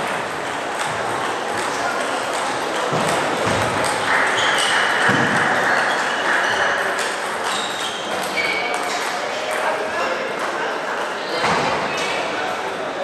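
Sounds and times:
high squeaks: 5.8s - 8.9s.

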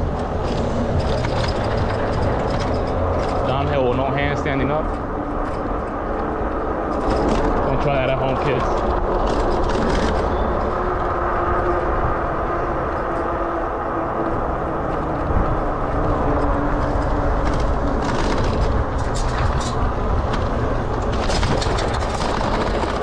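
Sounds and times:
wind buffeting microphone: 0.0s - 23.0s
light clicks and rattles: 14.9s - 23.0s.

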